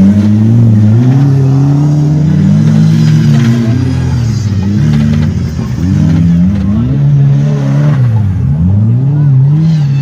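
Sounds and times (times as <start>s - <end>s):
off-road vehicle engine revving: 0.0s - 10.0s.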